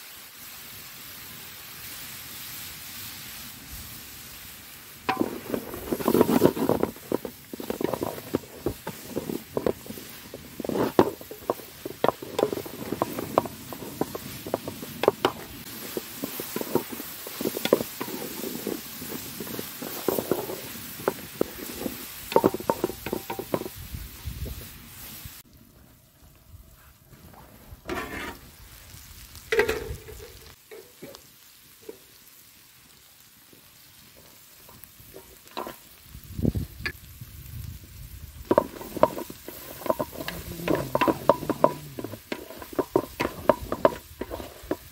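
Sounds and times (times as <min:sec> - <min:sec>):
chicken sizzling in a pan: 0:00.0 - 0:25.5, 0:27.8 - 0:44.9
wooden spatula scraping a pan: 0:05.1 - 0:23.9, 0:27.2 - 0:28.5, 0:29.6 - 0:31.2, 0:34.1 - 0:35.9, 0:38.5 - 0:44.9.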